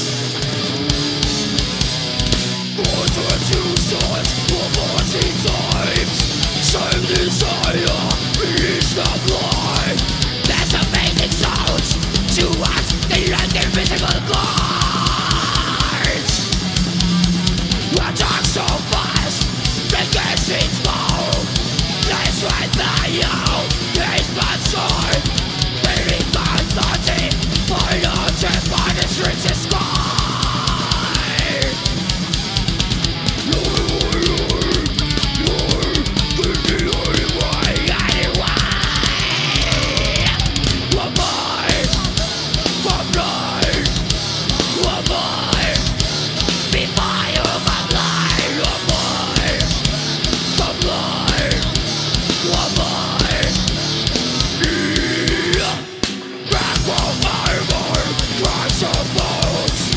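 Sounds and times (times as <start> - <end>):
bass guitar: 0.0 - 59.9
distorted electric guitars: 0.0 - 59.9
fast bass-drum beat: 0.0 - 59.9.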